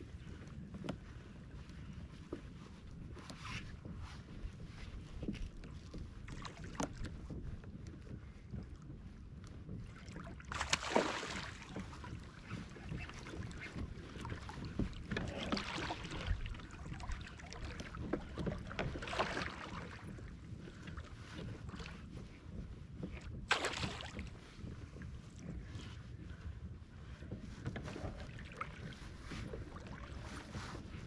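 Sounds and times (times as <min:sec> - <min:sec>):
water lapping against hull: 0:00.0 - 0:31.0
wind on microphone: 0:00.0 - 0:31.0.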